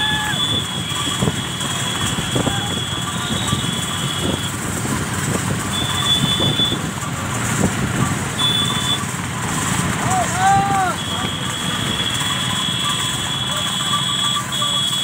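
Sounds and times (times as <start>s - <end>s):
motor vehicles rumbling: 0.0s - 15.0s
high steady beep: 8.4s - 9.1s, 11.0s - 15.0s.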